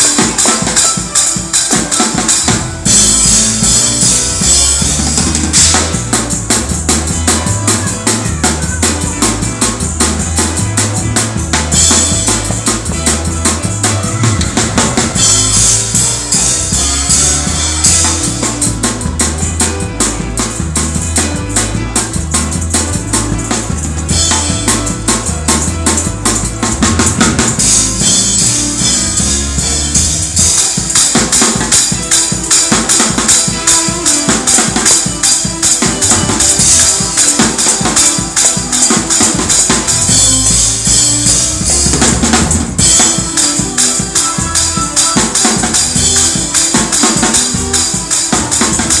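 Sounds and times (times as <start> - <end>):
fast drum kit playing: 0.0 - 49.0
bass line: 2.2 - 30.6, 35.8 - 37.2, 39.0 - 46.6, 47.3 - 49.0.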